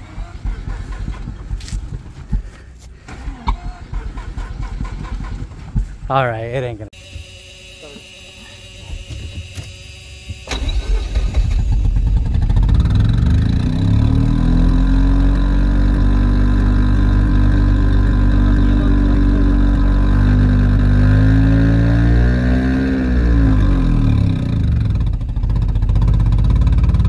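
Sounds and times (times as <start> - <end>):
starter cranking engine: 0.0 - 6.0, 7.7 - 21.1
rotary engine running: 7.0 - 27.0.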